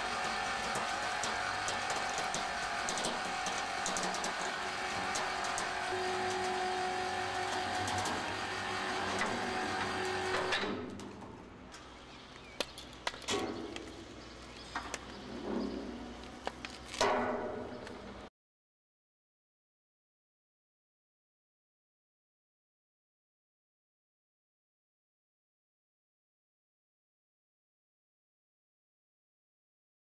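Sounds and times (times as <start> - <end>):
machinery humming: 0.0 - 11.9
scattered clicks and knocks: 0.0 - 11.9.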